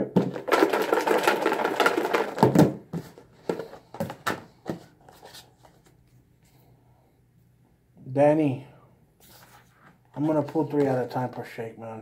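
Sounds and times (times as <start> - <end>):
container clicks and knocks: 0.0 - 4.4
paper slips rattling in container: 0.2 - 2.6.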